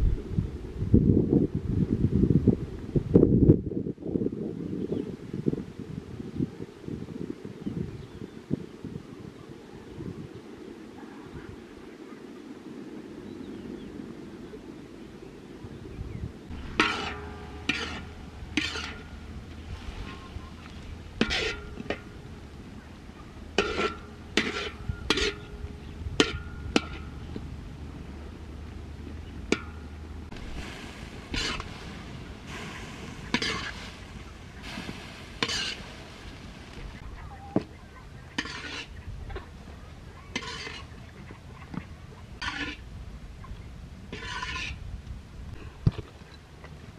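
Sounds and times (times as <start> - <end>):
steady low rumble: 0.0 - 4.4, 9.7 - 38.4
low steady background noise: 0.0 - 46.9
utensil scraping a cooking pot: 16.5 - 22.2, 23.5 - 27.2, 31.2 - 31.8, 32.5 - 33.8, 35.4 - 35.9, 38.3 - 39.0, 40.4 - 41.0, 42.4 - 42.8, 44.1 - 44.8.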